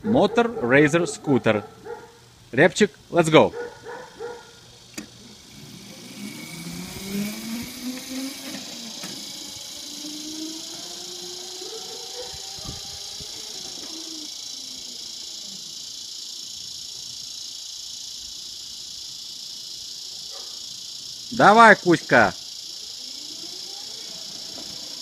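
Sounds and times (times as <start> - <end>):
insect chorus hiss: 0.0 - 25.0
electric scooter motor whining: 3.8 - 25.0.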